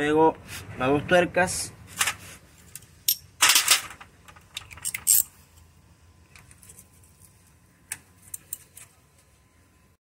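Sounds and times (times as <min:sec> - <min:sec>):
metal wrench clinking on nuts: 0:04.7 - 0:05.3.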